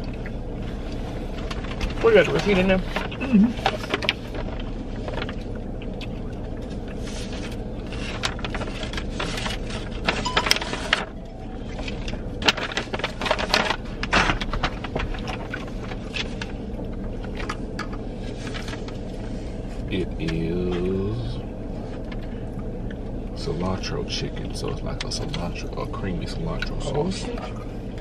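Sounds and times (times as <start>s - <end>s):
vehicle interior hum: 0.0s - 28.0s
paper bag rustling: 1.2s - 5.4s, 7.0s - 17.4s, 18.1s - 19.8s.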